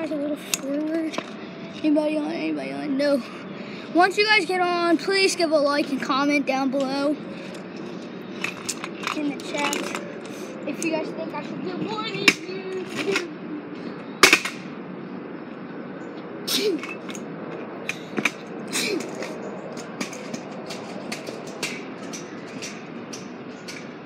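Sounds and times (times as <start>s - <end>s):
scooter clacking on pavement: 0.0s - 2.4s, 4.0s - 13.4s, 16.8s - 24.0s
street background noise: 0.0s - 24.0s.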